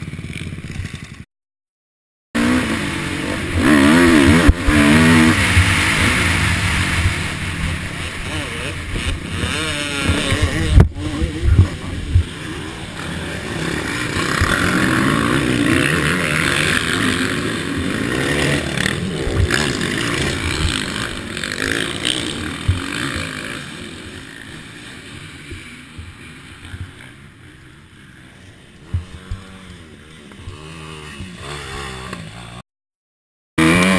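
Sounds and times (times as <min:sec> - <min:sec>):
wind noise on microphone: 0:03.6 - 0:12.4.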